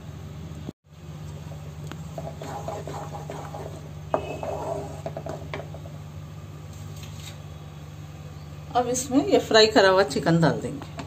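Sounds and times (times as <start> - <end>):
wooden spatula scraping wok: 2.1 - 5.9
spatula knocking on wok: 2.2 - 5.9.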